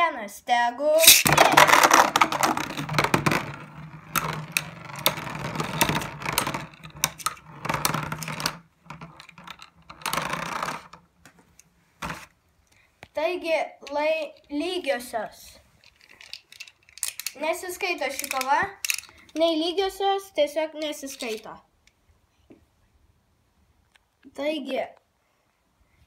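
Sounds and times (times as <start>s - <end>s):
spinning tops whirring and clicking: 1.0s - 7.4s
spinning tops clattering landing: 1.0s - 8.6s.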